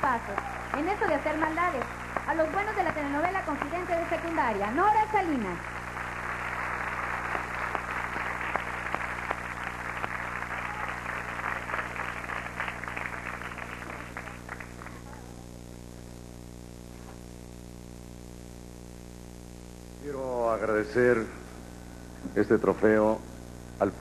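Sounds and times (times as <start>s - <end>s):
audience applauding: 0.0s - 15.4s
steady electrical hum: 0.0s - 24.0s.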